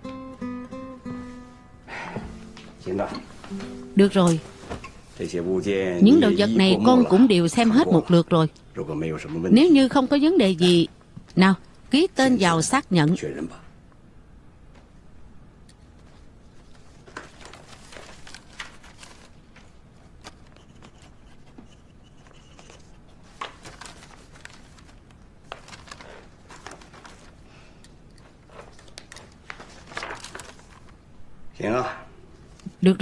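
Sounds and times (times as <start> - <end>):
paper rustling: 16.0 - 31.0.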